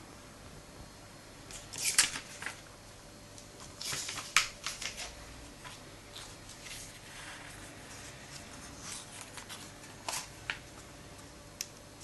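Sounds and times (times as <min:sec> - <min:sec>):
paper page snap: 0:01.5 - 0:02.6, 0:03.8 - 0:05.1
paper pages rustling: 0:01.5 - 0:02.6, 0:03.6 - 0:10.8.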